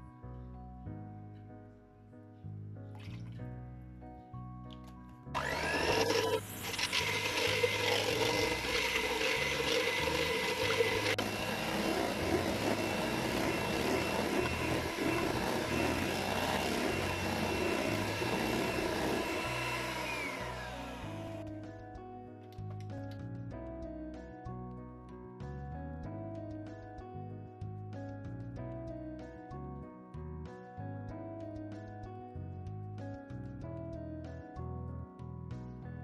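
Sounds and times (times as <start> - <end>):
electric hand mixer whining: 5.4 - 21.5.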